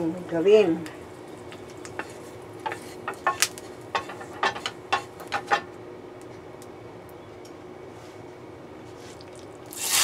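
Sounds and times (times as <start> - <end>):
spatula scraping frying pan: 2.0 - 5.6.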